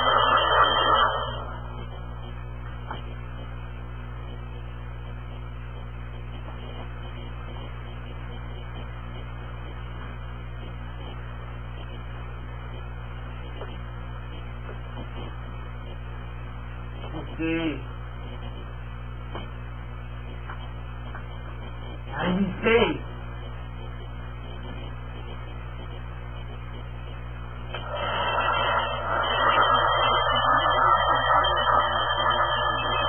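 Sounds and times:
hair dryer blowing: 0.0 - 1.5, 27.8 - 33.0
low electrical hum: 0.0 - 33.0.

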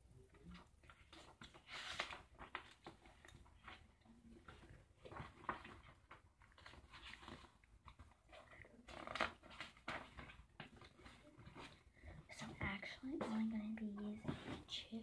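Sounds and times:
paper rustling: 0.3 - 11.9.

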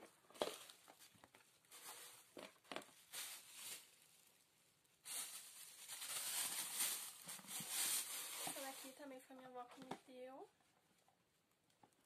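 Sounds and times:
plastic containers rustling and knocking: 0.0 - 3.9, 5.2 - 10.3
plastic crinkle: 0.0 - 10.4.

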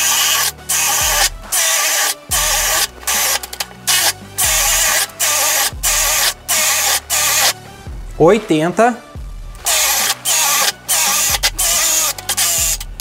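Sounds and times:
cordless drill boring wood: 0.0 - 7.6, 9.6 - 13.0.

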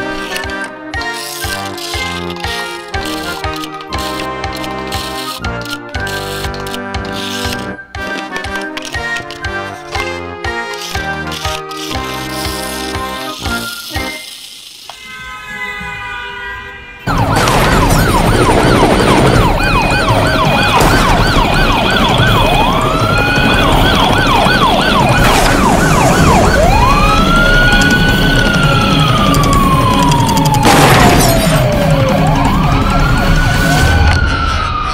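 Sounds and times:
electronic police siren: 17.0 - 34.9
sharp crashes: 30.6 - 31.8.

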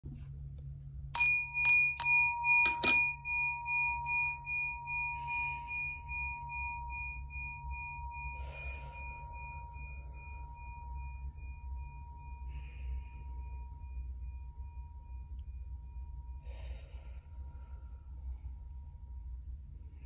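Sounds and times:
metal chime ringing: 1.2 - 15.3
soft breaths: 7.7 - 11.1, 16.3 - 19.0.

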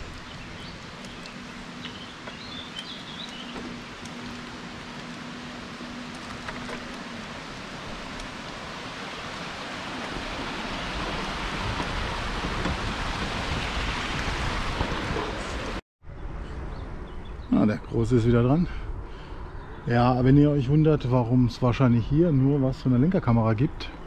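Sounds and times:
bicycle tyres rolling: 0.0 - 15.8
wind rushing on microphone: 0.0 - 22.1.

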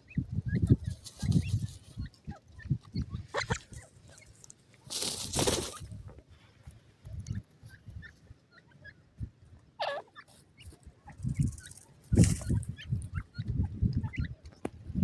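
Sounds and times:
bird dust-bathing and flapping: 0.8 - 2.0, 3.5 - 6.0, 11.2 - 12.7.

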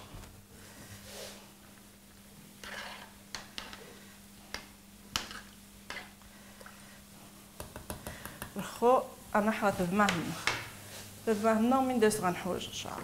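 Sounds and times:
faint steady hum: 0.0 - 13.0
metal spoon stirring in saucepan: 2.6 - 3.9.

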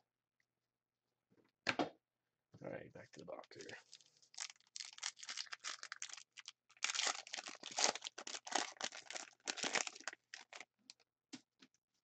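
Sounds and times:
foil wrapper tearing and crinkling: 3.6 - 10.6.

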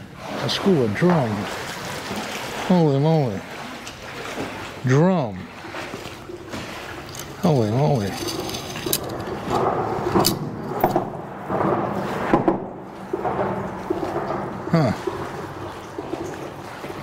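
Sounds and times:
low murmured vocal sounds: 14.7 - 15.0.

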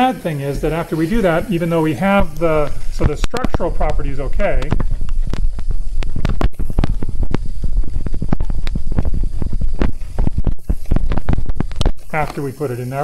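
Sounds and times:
low rumble: 2.2 - 12.2.

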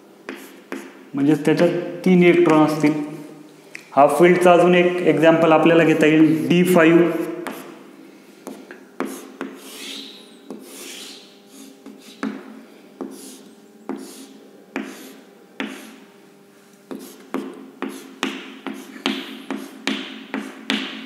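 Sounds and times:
chalk scratching on chalkboard: 0.3 - 1.0, 7.4 - 7.8, 8.4 - 12.4, 13.0 - 16.0, 16.9 - 20.8
chalk tapping on board: 0.3 - 1.0, 7.4 - 7.7, 8.4 - 16.0, 16.9 - 21.0.

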